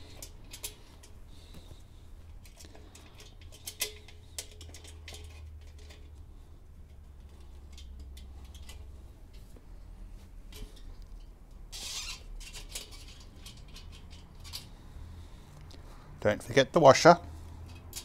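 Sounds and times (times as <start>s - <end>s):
metal hardware clicking: 0.1s - 1.2s, 2.4s - 6.1s, 17.6s - 18.0s.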